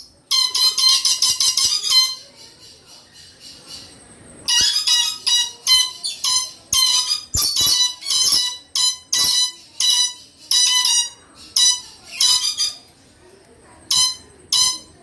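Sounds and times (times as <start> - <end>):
parrots screeching: 4.5 - 12.9, 13.9 - 14.9.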